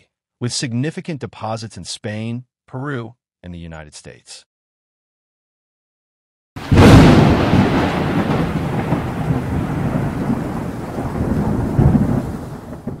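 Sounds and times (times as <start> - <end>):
rolling thunder rumble: 6.6 - 13.0
thunder crack: 6.6 - 13.0.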